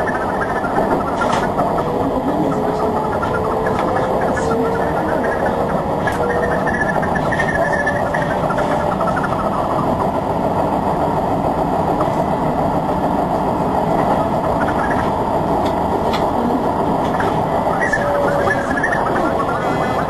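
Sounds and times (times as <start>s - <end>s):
train wheels and motors running: 0.0s - 20.0s.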